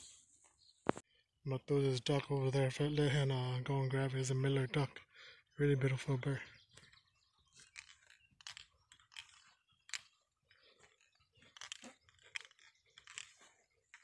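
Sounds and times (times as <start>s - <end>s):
faint crackling and rustling: 6.6s - 14.0s.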